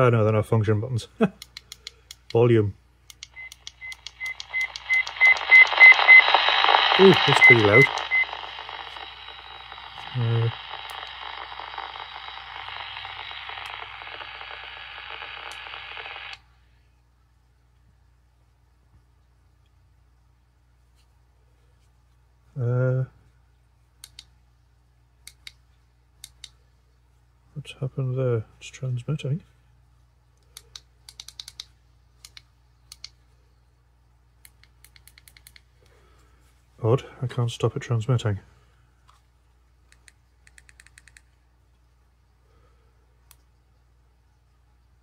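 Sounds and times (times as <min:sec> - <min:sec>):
faint hum: 0:00.0 - 0:45.0
sharp clicks: 0:03.1 - 0:16.4, 0:30.4 - 0:33.2, 0:34.4 - 0:35.7
radio static hissing: 0:03.4 - 0:16.4.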